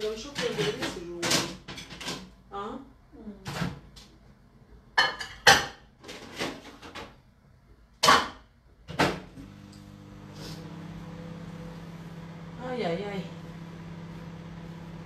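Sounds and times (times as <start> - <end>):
kitchen knocks and clacks: 0.0 - 2.4, 4.9 - 7.2, 8.0 - 9.4
microwave oven humming: 9.0 - 15.0.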